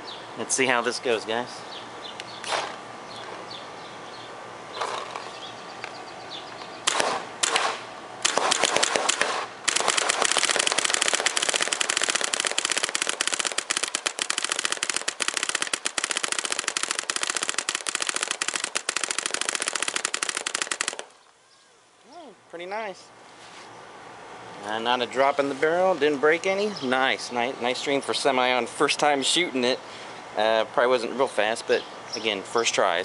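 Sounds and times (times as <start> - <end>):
paintball gun rapid firing: 6.9 - 21.1.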